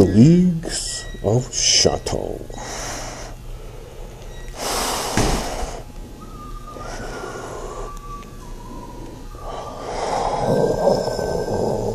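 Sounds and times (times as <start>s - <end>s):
heavy breathing through respirator: 2.5s - 11.9s
thin descending whistling tone: 6.1s - 11.8s.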